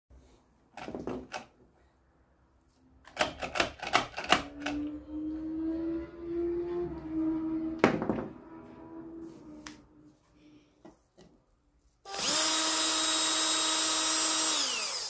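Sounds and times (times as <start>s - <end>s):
plastic parts knocking: 0.7s - 1.5s
steady hum rising in pitch: 4.8s - 10.2s.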